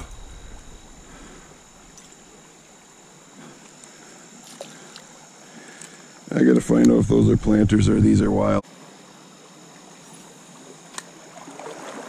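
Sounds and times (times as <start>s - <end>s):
stream water rushing: 11.2s - 12.0s.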